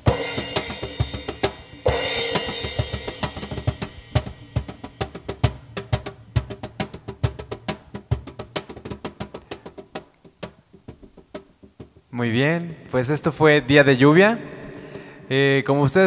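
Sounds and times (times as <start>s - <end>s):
cymbal crash: 0.0s - 5.0s
cajon hand strikes: 2.5s - 12.9s.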